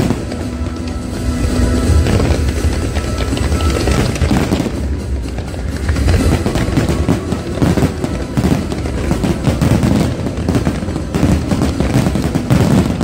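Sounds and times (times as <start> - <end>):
fireworks bangs and crackles: 0.0 - 13.0.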